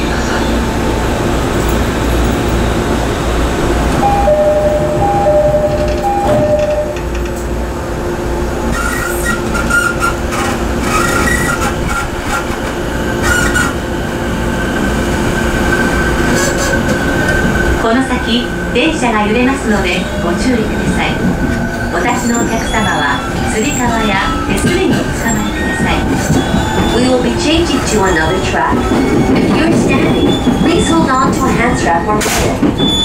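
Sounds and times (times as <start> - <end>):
train traction motor whine: 0.0 - 33.0
two-note electronic tone: 4.0 - 7.0.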